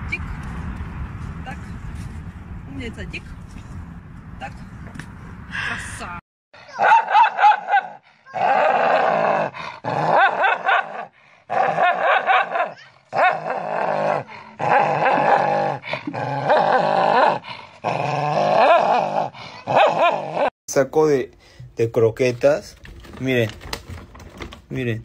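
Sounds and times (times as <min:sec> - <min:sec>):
small dog snarling and growling: 0:08.2 - 0:12.0, 0:12.6 - 0:20.5.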